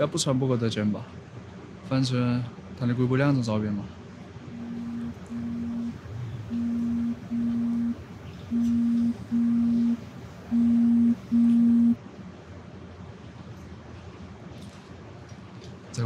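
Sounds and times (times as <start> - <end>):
phone ringing in pulsed tones: 4.5 - 12.0.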